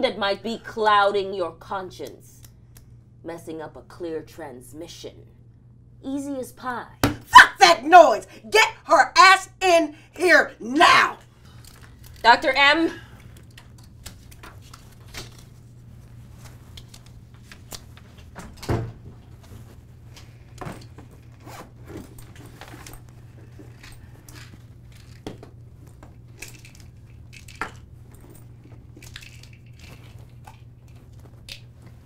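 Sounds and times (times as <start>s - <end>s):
steady low hum: 0.0s - 32.0s
rustling in bag: 19.2s - 32.0s
zipper: 21.2s - 23.8s
items clicking and knocking: 22.0s - 32.0s.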